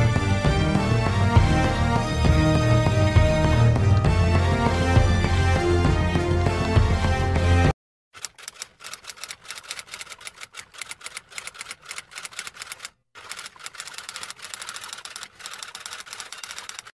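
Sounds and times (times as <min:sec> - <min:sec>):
music: 0:00.0 - 0:07.7.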